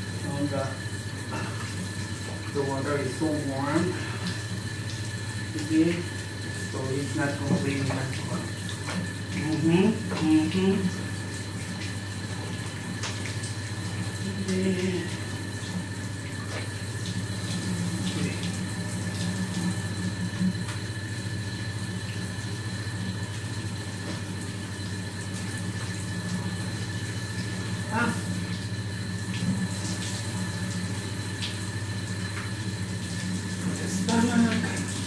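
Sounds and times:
water running from a tap: 0:00.0 - 0:35.0
person murmuring: 0:14.4 - 0:15.2.

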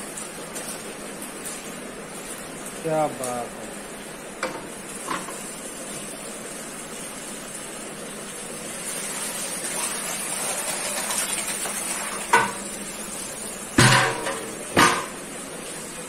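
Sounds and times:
liquid gushing from tub: 0:05.5 - 0:15.9
tub knocks: 0:13.8 - 0:15.1.

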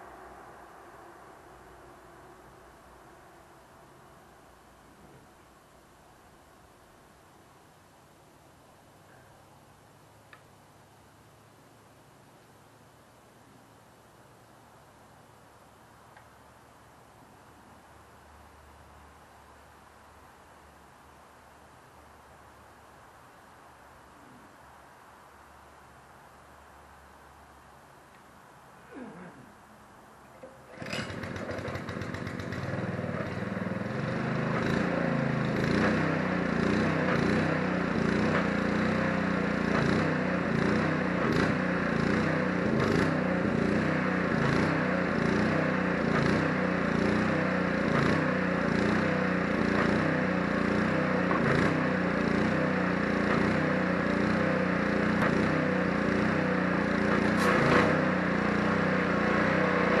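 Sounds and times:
pressure washer engine running: 0:30.7 - 1:00.0.

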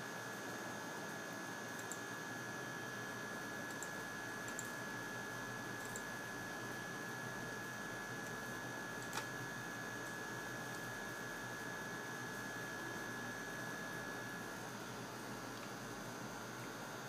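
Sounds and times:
electrical hum and hiss: 0:00.0 - 0:17.0
click: 0:01.8 - 0:02.0, 0:03.7 - 0:03.9, 0:04.5 - 0:04.7, 0:09.0 - 0:09.3.

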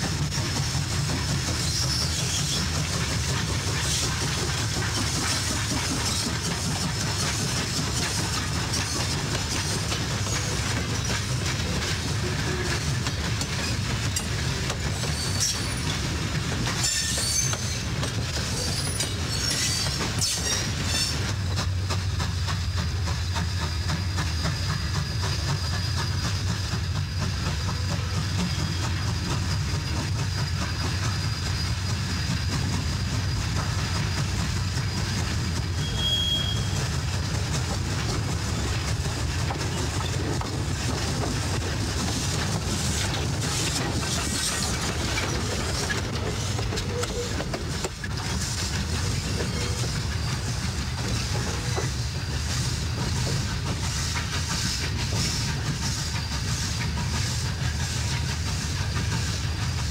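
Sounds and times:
train rumbling over track: 0:00.0 - 0:59.9
wheels clicking over rail joints: 0:00.0 - 0:59.9
high wheel squeals: 0:01.5 - 0:02.7, 0:08.6 - 0:11.3, 0:13.6 - 0:16.0, 0:16.7 - 0:21.2, 0:33.3 - 0:37.0.

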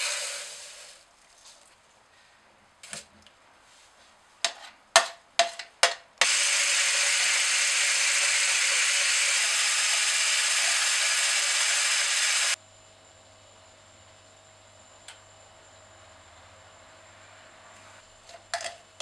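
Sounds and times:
electric whisk beating in plastic jug: 0:06.2 - 0:12.6.

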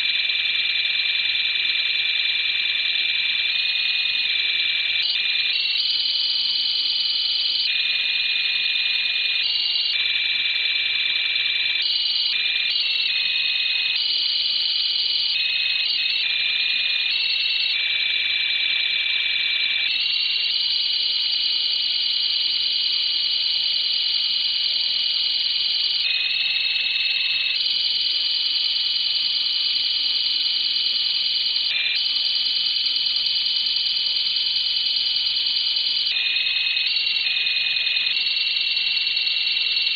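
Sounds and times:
high electronic data tones: 0:03.0 - 0:23.5, 0:25.7 - 0:27.7, 0:31.6 - 0:39.9.

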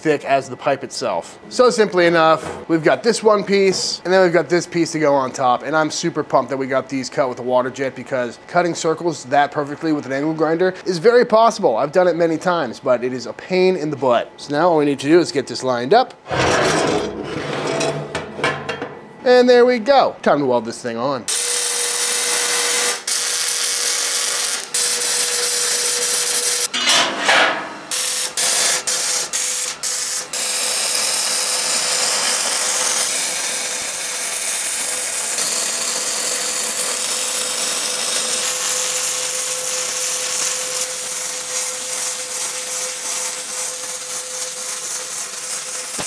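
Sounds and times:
welding arc crackling: 0:21.3 - 0:26.7, 0:27.9 - 0:46.0.

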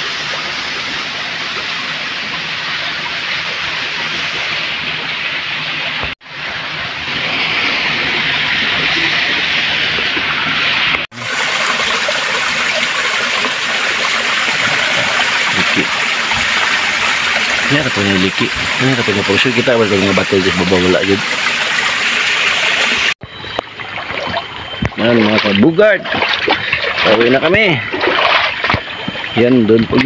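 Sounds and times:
water rushing over rock: 0:06.0 - 0:23.2.

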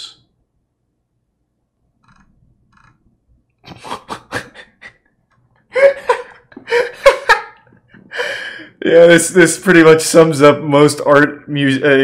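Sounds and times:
man laughing: 0:03.6 - 0:05.1, 0:05.7 - 0:09.2.

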